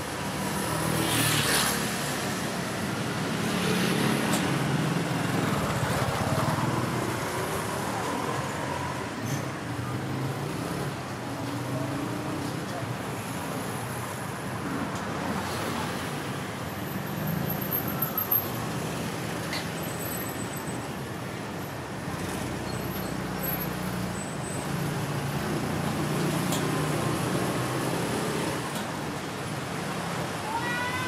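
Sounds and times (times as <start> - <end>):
passing vehicles rumbling: 0.0 - 19.5.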